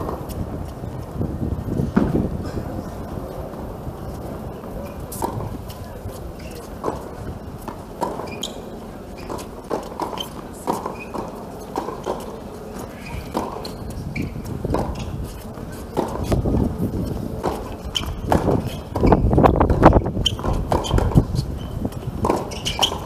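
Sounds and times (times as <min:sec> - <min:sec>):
players' footsteps: 0:00.0 - 0:23.0
tennis ball bouncing: 0:01.9 - 0:02.2, 0:05.1 - 0:23.0
racket hitting tennis ball: 0:05.1 - 0:23.0.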